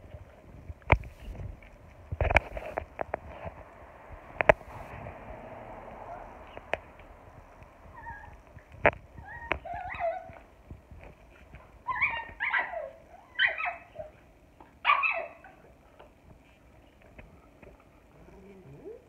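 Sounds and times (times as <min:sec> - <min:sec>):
dogs whining yelps: 0:07.8 - 0:08.4, 0:09.2 - 0:10.5, 0:11.8 - 0:15.8.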